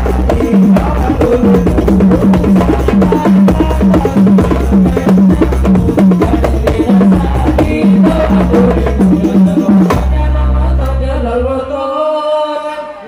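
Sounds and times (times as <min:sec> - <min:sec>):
hand drums playing fast rhythm: 0:00.0 - 0:10.2
deep bass drum notes: 0:00.0 - 0:10.6.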